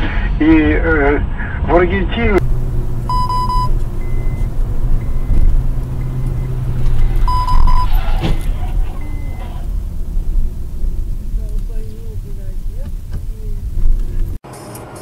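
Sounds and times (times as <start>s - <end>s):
car road and engine rumble: 0.0s - 15.0s
short electronic beep: 3.1s - 5.4s, 7.3s - 8.0s, 9.0s - 9.5s.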